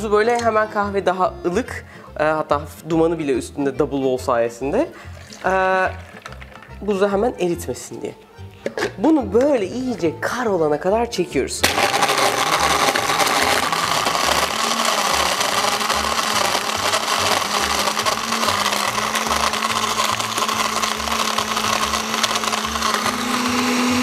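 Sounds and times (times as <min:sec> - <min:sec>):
blender crushing ice: 0:05.1 - 0:06.8, 0:11.6 - 0:24.0.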